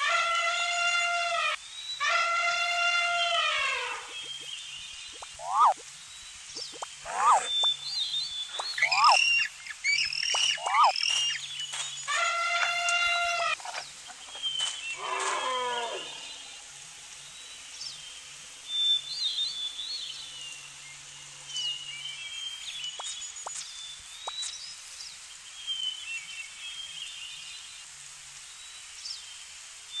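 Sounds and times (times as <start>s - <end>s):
birds chirping: 3.2s - 16.6s
moo-like animal call: 7.1s - 7.6s, 15.0s - 16.3s.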